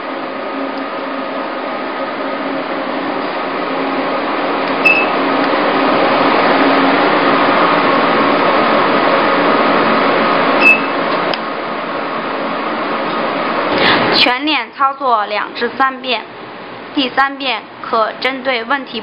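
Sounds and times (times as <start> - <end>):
machine whirring hum: 0.0 - 19.0
click with high beep: 4.8 - 5.1, 10.6 - 10.9.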